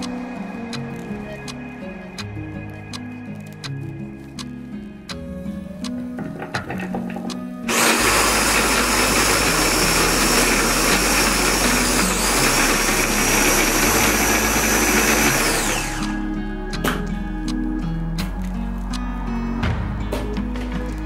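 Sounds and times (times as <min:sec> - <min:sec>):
food chopper motor whining: 0:07.7 - 0:16.2.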